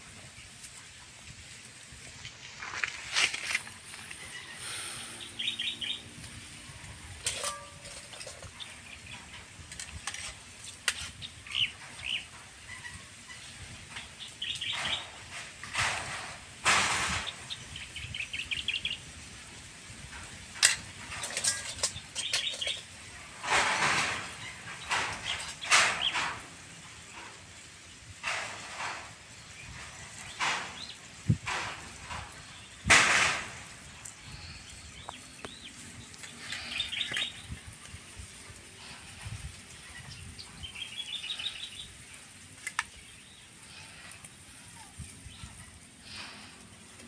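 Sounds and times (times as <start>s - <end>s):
loud hissing rush: 0.0s - 12.7s, 13.4s - 47.0s
small birds chirping: 0.0s - 47.0s
shells scraping and clinking: 7.1s - 11.2s, 20.6s - 24.3s.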